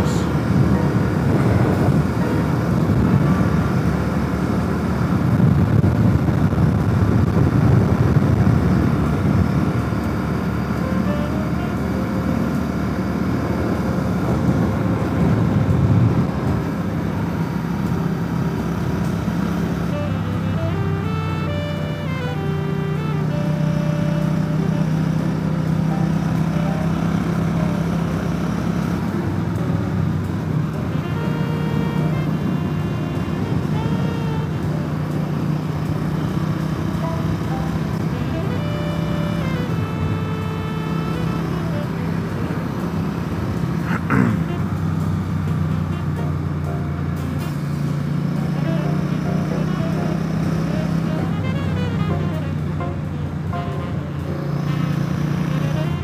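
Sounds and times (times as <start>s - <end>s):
wind rushing: 0.0s - 9.7s
motorcycle engine drone: 0.0s - 56.0s
wind and road noise: 0.0s - 56.0s.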